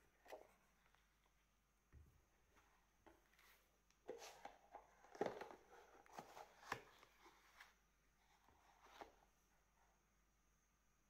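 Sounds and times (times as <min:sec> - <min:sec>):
disc case taps and rustles: 0:04.1 - 0:07.2.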